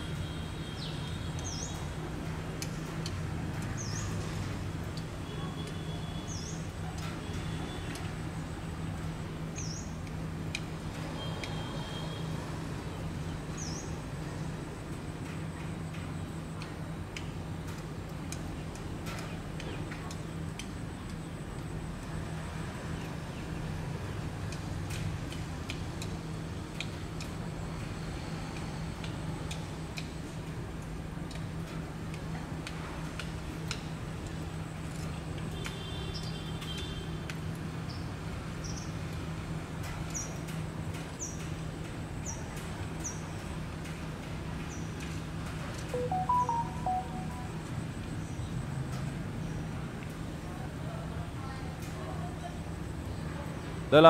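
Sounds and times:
short chirps: 0:46.0 - 0:47.7
short pitched tones: 0:46.0 - 0:47.8.

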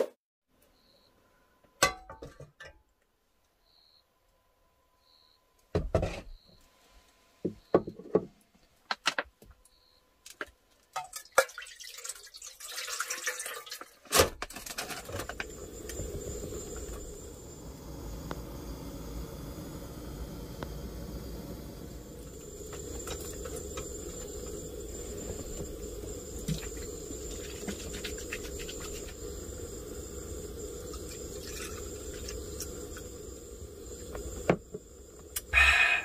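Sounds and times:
liquid pouring into a pot: 0:11.0 - 0:14.0, 0:25.8 - 0:33.1
gas flame hissing: 0:14.7 - 0:36.0
stove igniter clicking: 0:15.2 - 0:27.3.

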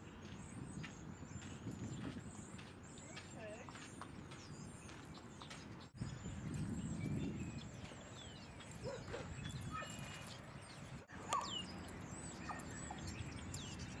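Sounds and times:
low outdoor background: 0:00.0 - 0:14.0
dogs yipping and whining: 0:08.6 - 0:14.0.

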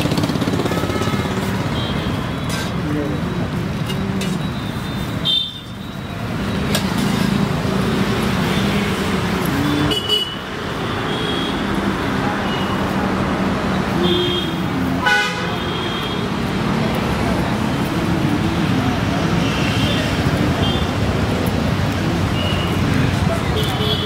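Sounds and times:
road traffic: 0:00.0 - 0:24.0
car horn toot: 0:14.1 - 0:15.6.

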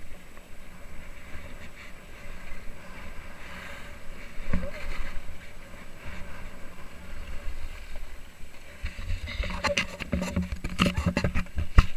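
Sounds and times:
skis scraping over snow: 0:00.0 - 0:11.9
wind on microphone: 0:00.0 - 0:11.9
sharp clicks and knocks: 0:09.4 - 0:11.9.

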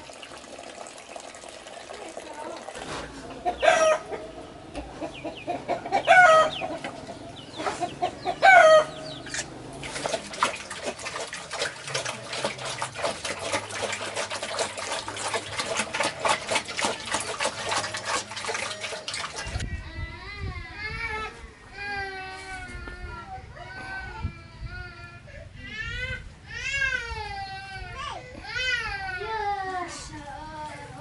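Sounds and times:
chicken calling: 0:03.3 - 0:09.5
pigs crunching and slurping: 0:09.2 - 0:19.6.

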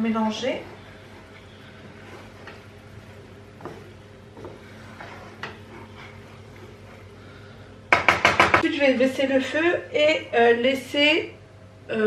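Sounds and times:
spatula stirring sauce in pan: 0:00.1 - 0:07.4
spatula knocking against pan: 0:07.9 - 0:08.6.

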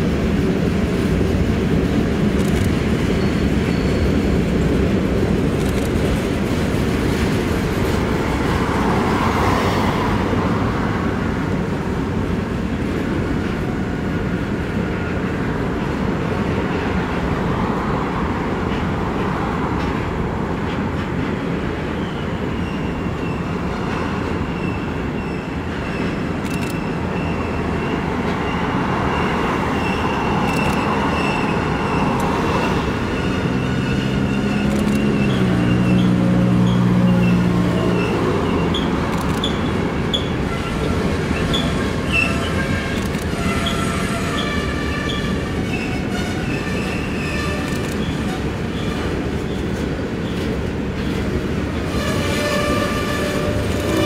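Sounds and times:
freight train wheels rumbling on rail: 0:00.0 - 0:54.0
wheel squeal: 0:03.2 - 0:04.2, 0:22.0 - 0:50.4.

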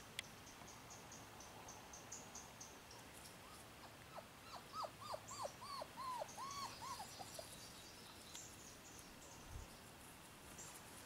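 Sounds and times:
puppy whining and yipping: 0:03.4 - 0:07.5.

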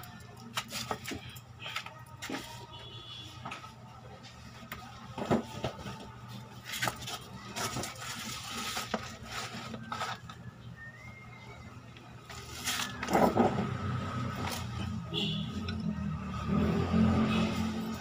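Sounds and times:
faint wavering whistle: 0:10.4 - 0:11.8.

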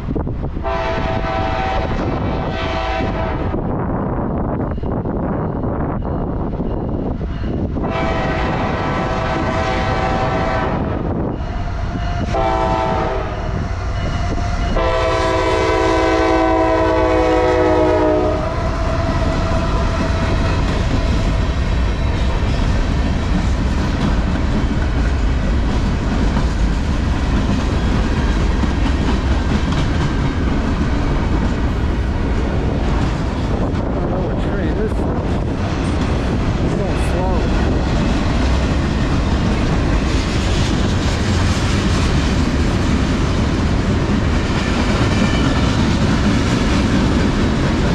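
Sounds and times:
locomotive air horn blasts: 0:00.6 - 0:03.6, 0:07.8 - 0:11.0, 0:12.3 - 0:20.5
freight cars rumbling and clattering: 0:18.6 - 0:47.9.

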